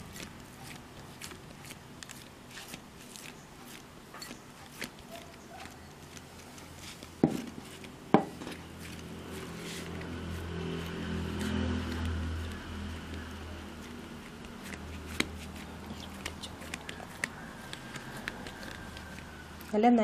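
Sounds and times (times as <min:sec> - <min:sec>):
fingers patting dough: 0:00.0 - 0:20.0
leaf crackling: 0:00.0 - 0:20.0.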